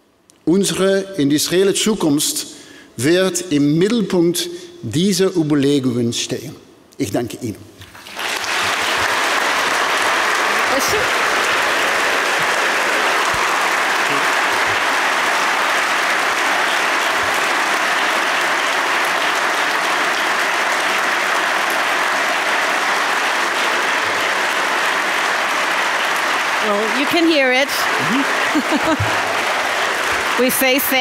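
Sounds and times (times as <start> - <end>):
audience applause: 7.9 - 31.0.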